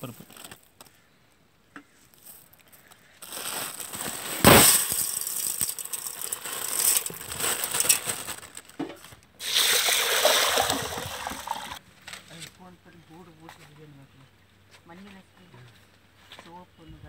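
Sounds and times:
grains rattling into metal pot: 3.4s - 11.8s
water pouring and splashing: 9.4s - 11.8s.

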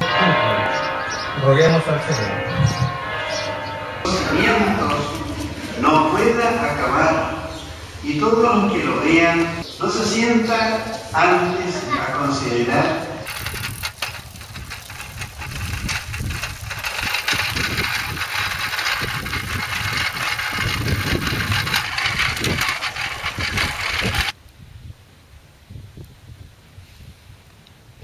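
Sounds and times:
bicycle frame rattling: 13.2s - 24.4s
wind on microphone: 13.3s - 28.0s.

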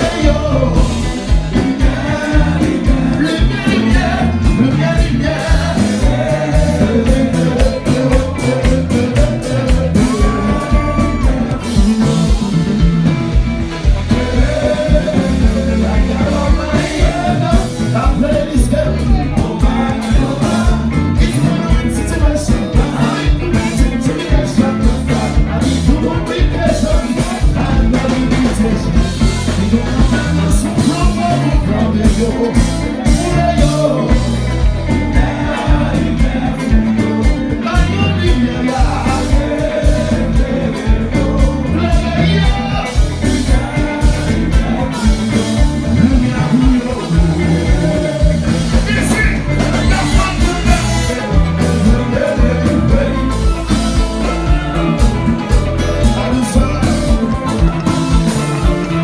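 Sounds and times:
man singing into a microphone: 0.0s - 13.3s, 13.9s - 57.9s
bass guitar: 0.0s - 59.0s
drums: 0.0s - 59.0s
electric guitar: 0.0s - 59.0s.

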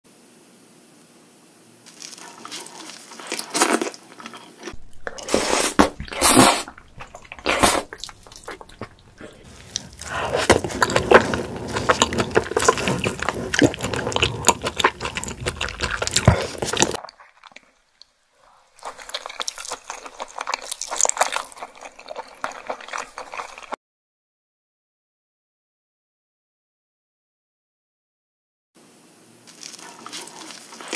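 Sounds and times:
wet chewing and slurping: 1.9s - 23.8s, 29.5s - 30.9s.

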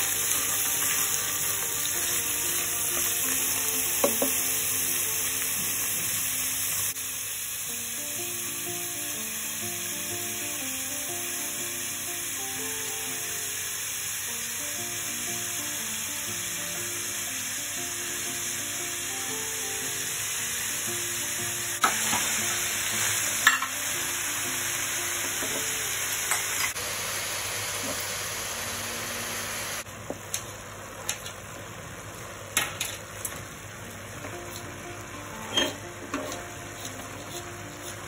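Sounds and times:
vegetables sizzling in oil: 0.0s - 38.0s
wooden spatula knocking on pan: 4.0s - 4.4s.

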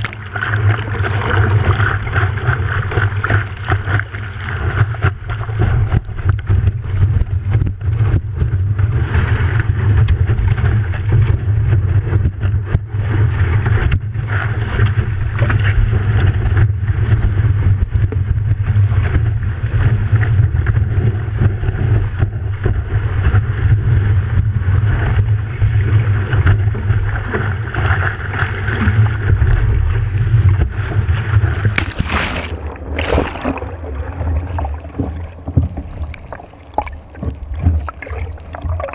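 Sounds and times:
loud splashes: 0.0s - 1.8s, 31.5s - 38.9s
rushing water: 0.0s - 11.8s, 24.8s - 38.9s
wind buffeting camera: 0.0s - 38.8s.

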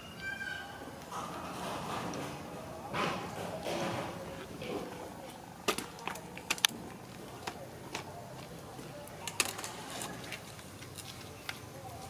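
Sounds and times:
dry crackles and clicks of leaves: 5.2s - 12.0s.

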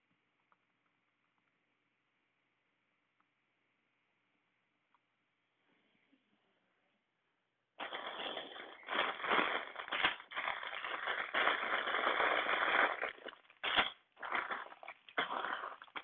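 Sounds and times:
plastic bags crinkling: 7.8s - 16.0s.

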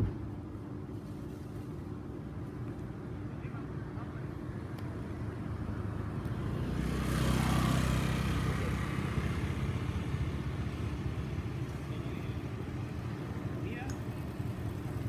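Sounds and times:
vehicle passing: 3.8s - 15.0s.

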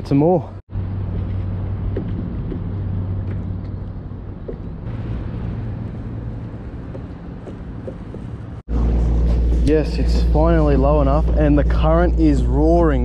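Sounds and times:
low hum: 0.7s - 13.0s.

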